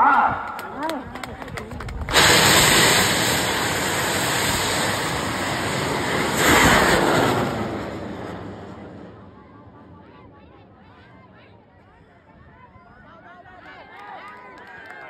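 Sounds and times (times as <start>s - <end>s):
rocket motor roaring: 2.0s - 9.3s.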